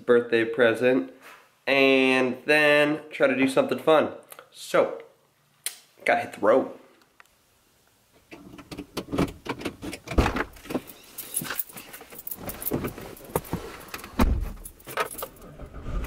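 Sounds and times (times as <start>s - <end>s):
car keys jangling: 9.9s - 15.5s
clothing rustling: 10.6s - 15.4s.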